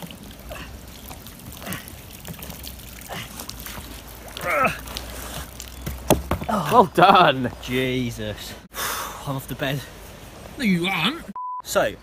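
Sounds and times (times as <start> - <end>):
water trickling and dripping: 0.0 - 8.3.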